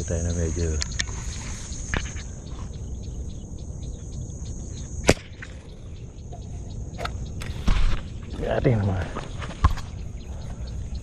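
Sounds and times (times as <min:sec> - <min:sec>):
insect chirring: 0:00.0 - 0:11.0
spear gun firing crack: 0:05.0 - 0:05.5.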